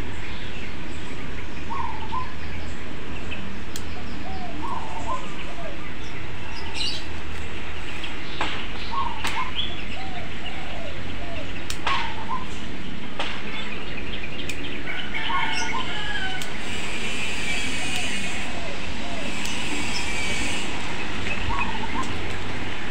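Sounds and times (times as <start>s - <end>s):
birds chirping: 0.0s - 22.9s
pruning scissors snipping: 3.7s - 3.9s, 11.6s - 12.1s, 14.4s - 14.6s, 16.3s - 18.6s, 19.2s - 22.9s.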